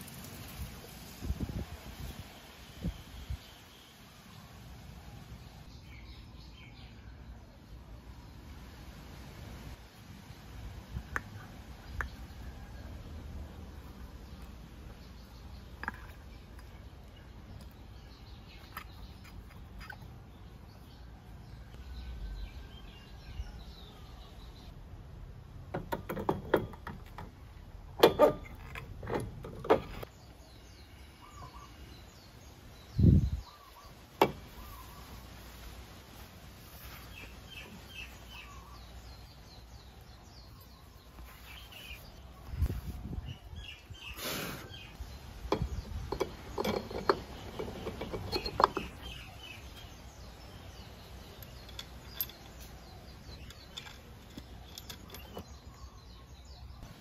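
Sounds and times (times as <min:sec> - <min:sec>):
birds chirping faintly: 0:00.0 - 0:57.0
clutch assembly clicking and knocking: 0:25.7 - 0:27.4, 0:28.0 - 0:30.1, 0:45.5 - 0:49.9.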